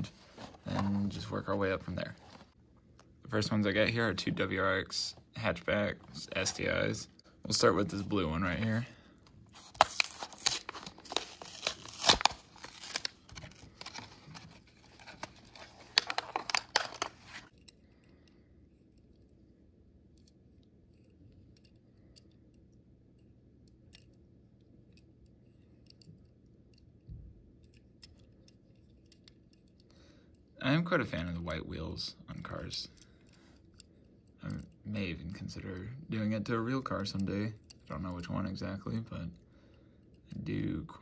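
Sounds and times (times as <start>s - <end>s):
cardboard and plastic tearing: 9.6s - 17.5s.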